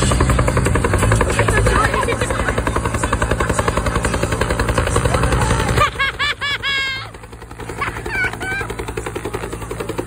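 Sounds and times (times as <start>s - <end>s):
helicopter rotor beating overhead: 0.0s - 10.0s
high-pitched laughter or shrieking: 5.6s - 8.8s.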